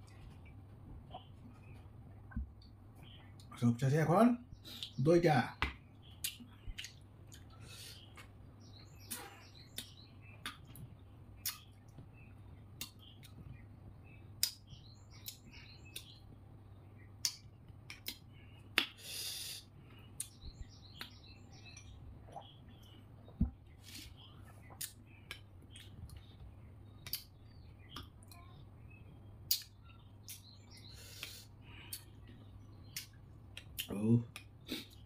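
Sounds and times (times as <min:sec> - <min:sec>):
wet mouth clicks and lip smacks: 0:06.2 - 0:07.5, 0:11.4 - 0:11.7, 0:17.2 - 0:18.2, 0:24.7 - 0:26.2, 0:27.0 - 0:27.3, 0:29.5 - 0:30.4.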